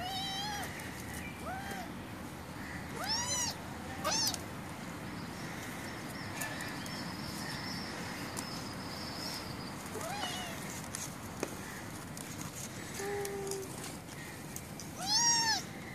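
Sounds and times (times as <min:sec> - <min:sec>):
kitten meowing: 0:00.0 - 0:00.7, 0:02.9 - 0:04.4, 0:10.0 - 0:10.6, 0:15.0 - 0:15.6.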